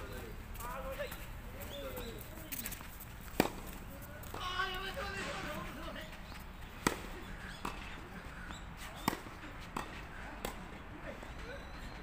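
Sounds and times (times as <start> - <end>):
tennis balls struck by rackets: 3.2 - 4.9, 6.6 - 10.8.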